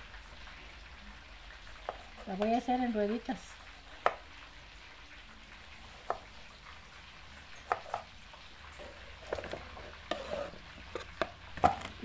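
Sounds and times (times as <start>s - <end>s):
fish sizzling in oil: 0.0s - 12.0s
slices scraped into plastic bowl: 9.3s - 11.1s.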